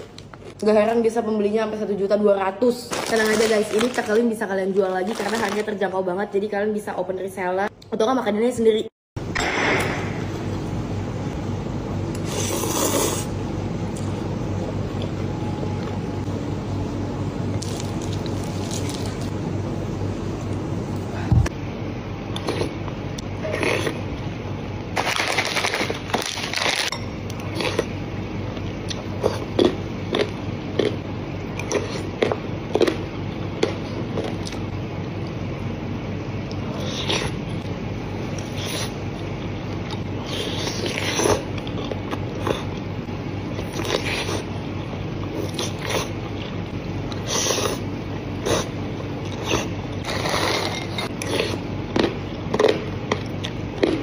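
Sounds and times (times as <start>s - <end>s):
slurping broth and noodles: 12.1s - 13.4s, 49.3s - 51.6s.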